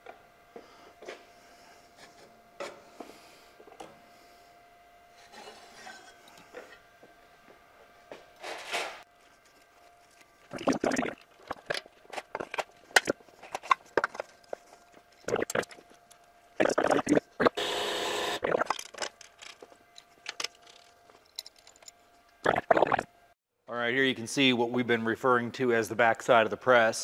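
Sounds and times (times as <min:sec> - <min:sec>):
metallic clicks and clatter: 0:18.7 - 0:22.4.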